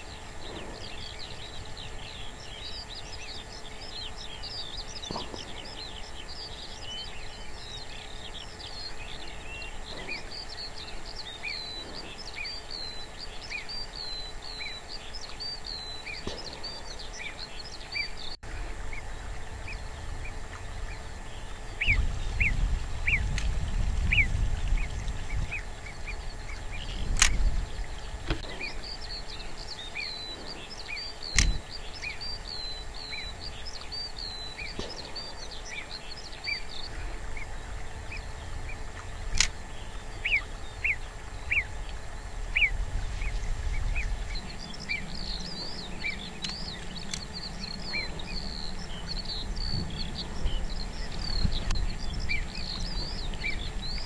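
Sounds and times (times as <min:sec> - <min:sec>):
small birds chirping: 0:00.0 - 0:54.0
wind gust on microphone: 0:18.2 - 0:54.0
sharp clicks: 0:26.9 - 0:29.4, 0:31.2 - 0:32.1, 0:39.0 - 0:39.7, 0:45.2 - 0:49.7.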